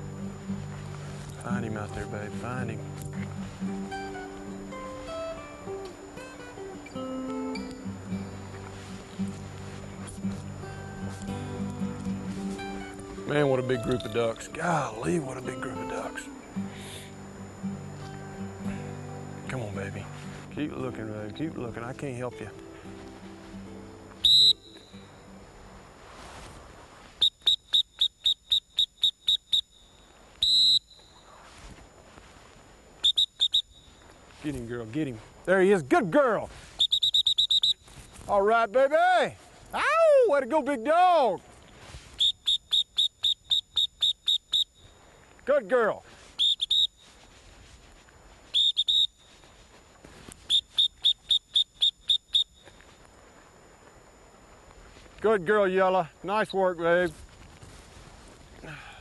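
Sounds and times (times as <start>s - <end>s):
dog whistle toots: 24.2s - 24.8s, 36.8s - 37.8s, 46.4s - 46.9s, 48.5s - 49.1s
long whistle blast: 24.2s - 25.0s, 27.2s - 31.2s, 33.0s - 34.0s, 36.7s - 37.9s, 42.1s - 44.9s, 46.3s - 47.1s, 48.5s - 49.5s.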